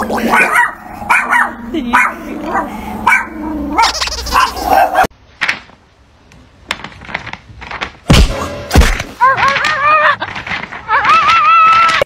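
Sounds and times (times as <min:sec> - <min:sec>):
loud thud: 0:08.0 - 0:09.2
clicks and scrapes: 0:08.9 - 0:12.0.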